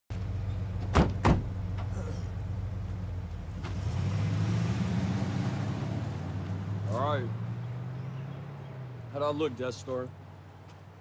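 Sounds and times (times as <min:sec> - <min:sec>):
van engine idling: 0:00.1 - 0:03.7.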